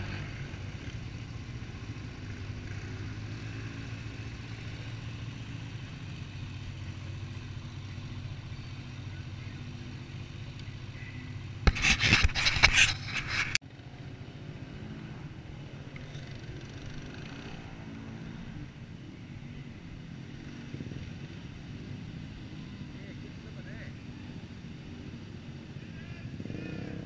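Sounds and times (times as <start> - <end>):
rubbing and scraping: 11.6 - 13.6.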